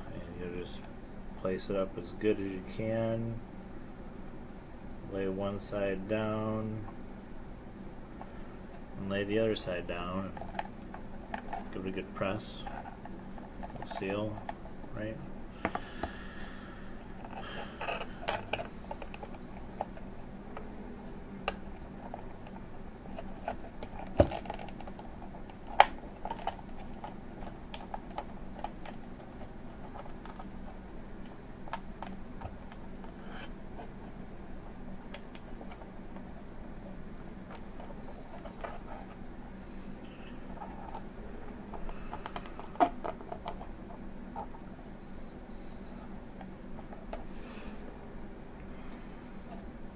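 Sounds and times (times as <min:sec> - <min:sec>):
hands handling cables clicking: 0:17.2 - 0:20.6, 0:21.4 - 0:33.9, 0:41.7 - 0:44.6.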